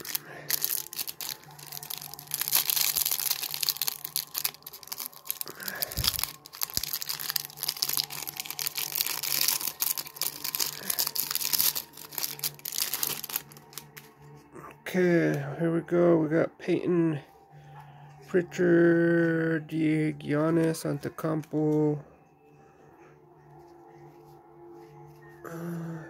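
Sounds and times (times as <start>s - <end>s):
plastic wrapping crinkling and tearing: 0.0s - 14.2s.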